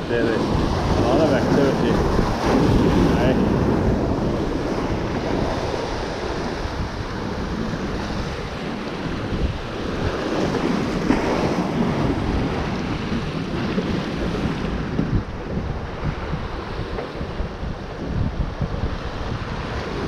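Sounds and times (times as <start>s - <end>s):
surf breaking: 0.0s - 20.0s
wind buffeting microphone: 0.0s - 20.0s.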